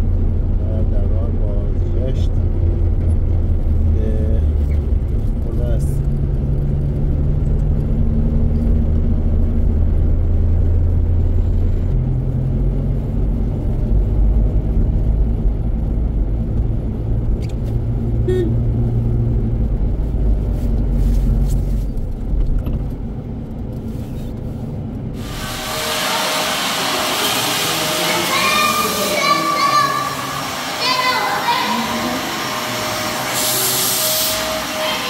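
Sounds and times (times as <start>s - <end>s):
car engine and road noise: 0.0s - 35.0s
loud steady hiss: 25.2s - 35.0s.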